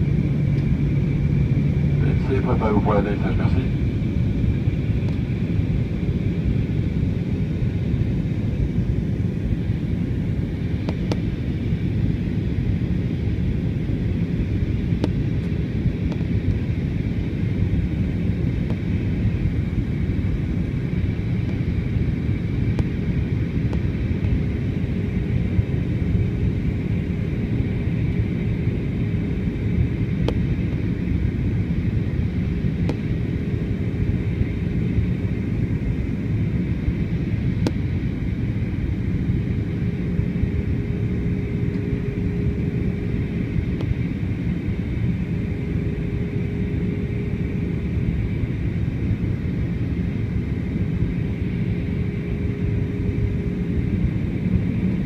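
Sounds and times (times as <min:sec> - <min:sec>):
jet cabin engine rumble: 0:00.0 - 0:55.0
steady hum: 0:00.0 - 0:55.0.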